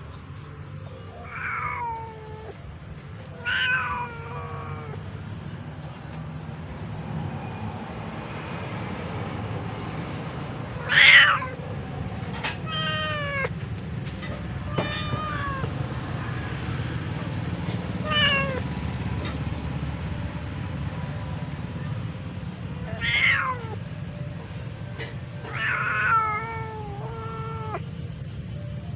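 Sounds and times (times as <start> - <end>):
cat meowing: 1.0 - 2.6, 3.2 - 5.1, 10.7 - 11.6, 12.5 - 13.6, 14.6 - 15.9, 18.0 - 18.6, 22.8 - 23.9, 25.4 - 27.9.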